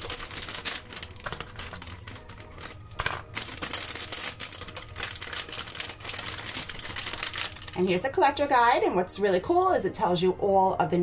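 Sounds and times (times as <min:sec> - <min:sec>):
plastic bag crinkling and tearing: 0:00.0 - 0:08.1.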